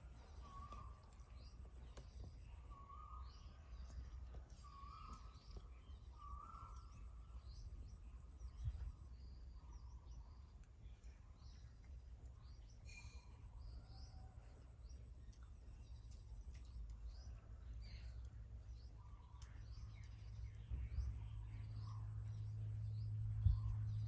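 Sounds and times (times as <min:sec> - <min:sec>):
bird chirps: 0:00.0 - 0:24.0
low rumble: 0:19.0 - 0:24.0.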